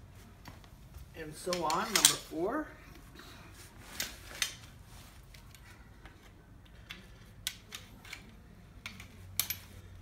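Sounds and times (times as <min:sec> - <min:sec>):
metallic clicks of metal tubes: 0:01.4 - 0:02.3.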